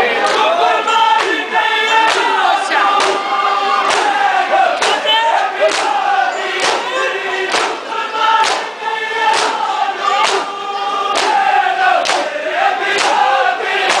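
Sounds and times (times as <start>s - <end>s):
crowd chanting a lament: 0.0s - 14.0s
chest beating slaps: 6.6s - 6.9s, 8.4s - 8.7s.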